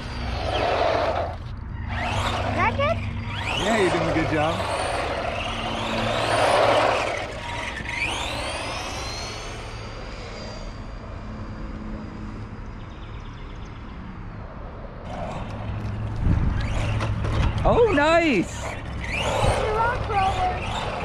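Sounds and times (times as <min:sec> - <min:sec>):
tyres rushing on pavement: 0:00.0 - 0:09.7, 0:15.1 - 0:21.0
electric toy truck motor whine: 0:00.0 - 0:12.3, 0:15.1 - 0:21.0.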